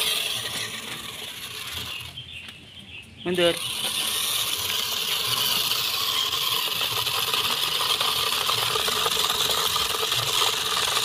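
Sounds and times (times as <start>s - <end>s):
toy truck electric motor whirring: 0.0s - 2.2s, 3.3s - 11.0s
rattle of rice grains: 3.7s - 11.0s.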